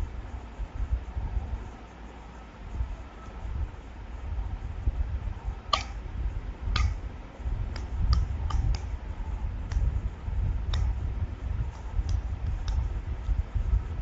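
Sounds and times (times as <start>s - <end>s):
low microphone rumble: 0.0s - 14.0s
sharp computer clicks: 5.7s - 6.1s, 7.7s - 9.0s, 10.7s - 13.0s.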